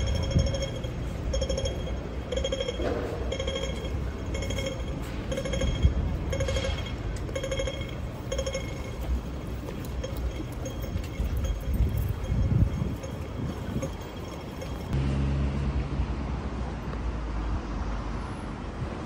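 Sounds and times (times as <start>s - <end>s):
high-pitched crossing beeps: 0.0s - 15.0s
low rumble of street traffic: 0.0s - 19.0s.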